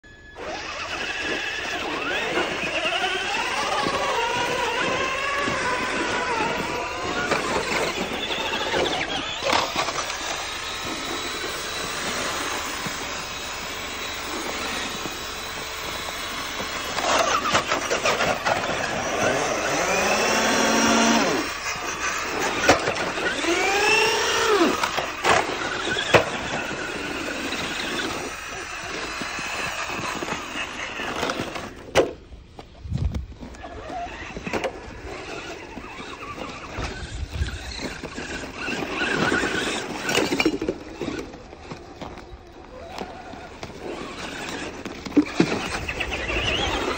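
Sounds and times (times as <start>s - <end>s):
toy car motors whining: 0.0s - 46.9s.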